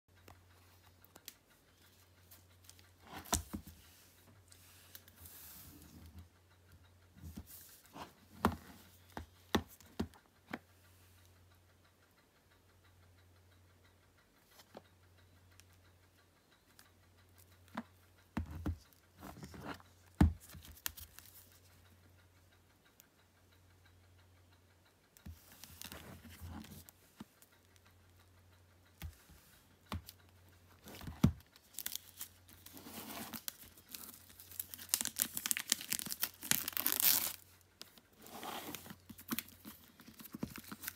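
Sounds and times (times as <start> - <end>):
packaging being handled: 31.6 - 37.4
packaging rustling: 32.8 - 37.4.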